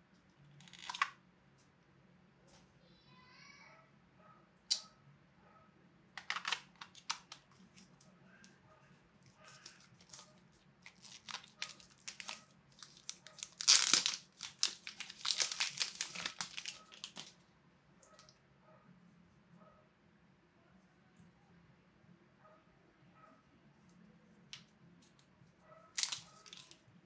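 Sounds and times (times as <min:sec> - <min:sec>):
plastic wrapper crinkling: 0:09.5 - 0:17.4, 0:25.9 - 0:26.8.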